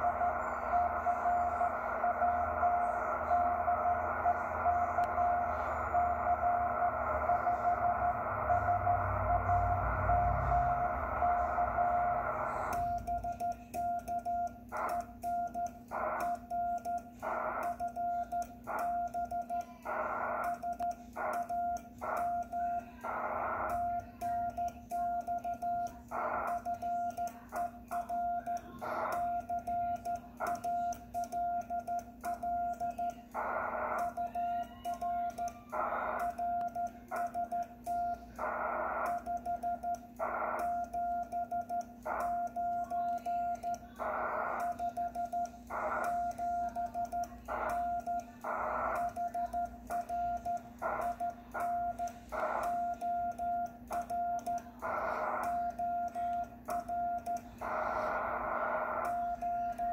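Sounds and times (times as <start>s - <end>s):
low hum: 0.0s - 19.1s
morse code beeps: 0.0s - 59.9s.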